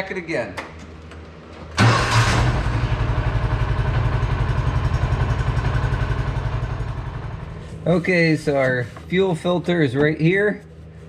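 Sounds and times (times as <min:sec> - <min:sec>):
utility vehicle engine running: 0:01.8 - 0:10.1.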